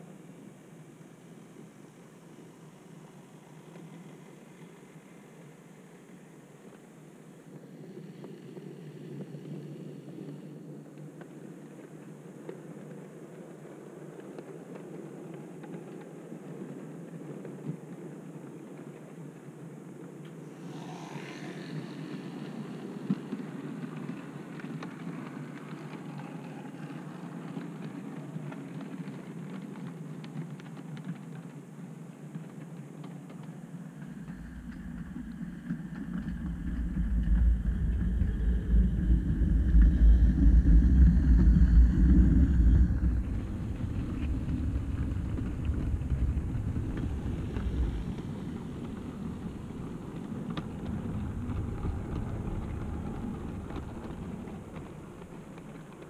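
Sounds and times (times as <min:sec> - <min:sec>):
model train rumbling on track: 0:33.6 - 0:56.0.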